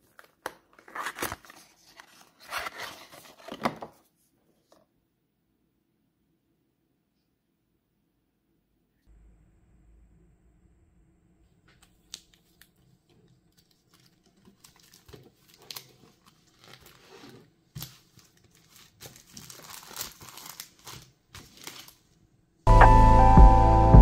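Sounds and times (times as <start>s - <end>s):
crinkling and rustling: 0.0s - 4.9s, 11.6s - 22.2s.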